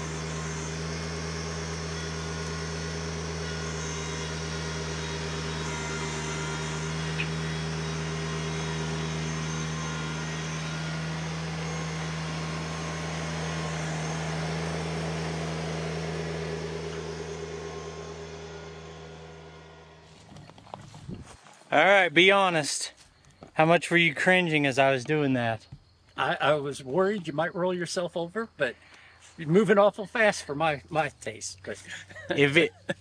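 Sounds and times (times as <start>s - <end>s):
tractor diesel engine running: 0.0s - 21.4s.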